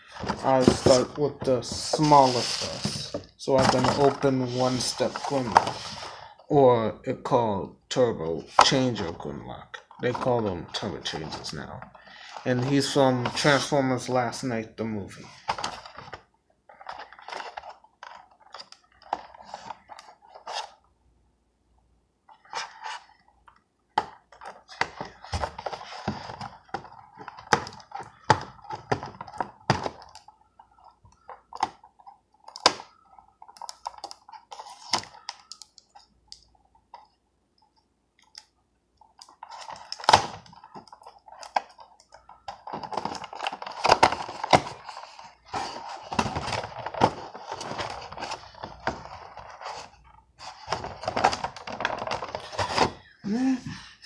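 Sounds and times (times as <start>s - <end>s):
cardboard box handled and opened: 0.1s - 6.2s
packaging rustling: 39.1s - 53.2s.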